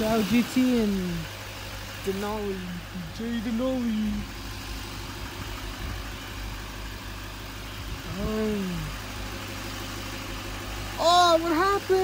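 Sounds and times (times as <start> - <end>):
person's voice: 0.0 - 1.3, 2.0 - 4.3, 8.0 - 9.0, 11.0 - 12.0
truck engine idling: 0.0 - 12.0.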